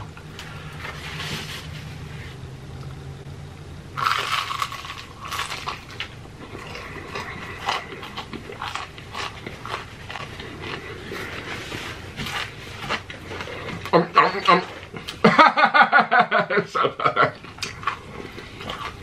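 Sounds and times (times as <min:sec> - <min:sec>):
crunchy chewing: 0:04.0 - 0:15.2, 0:17.3 - 0:19.0.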